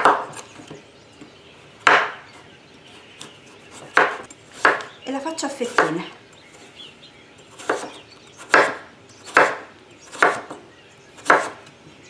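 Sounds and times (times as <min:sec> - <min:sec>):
knife chopping on wooden board: 0:00.0 - 0:00.4, 0:01.8 - 0:02.2, 0:03.8 - 0:04.9, 0:07.6 - 0:10.6, 0:11.2 - 0:11.6.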